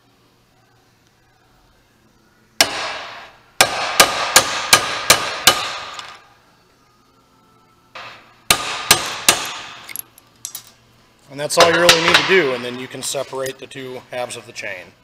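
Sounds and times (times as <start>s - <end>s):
hammer striking steel punch: 2.6s - 6.2s, 8.0s - 9.9s, 11.6s - 12.6s.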